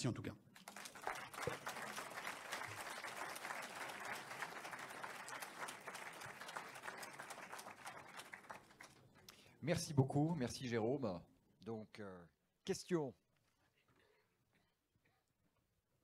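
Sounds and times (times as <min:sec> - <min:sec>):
audience applauding: 0:00.6 - 0:09.2.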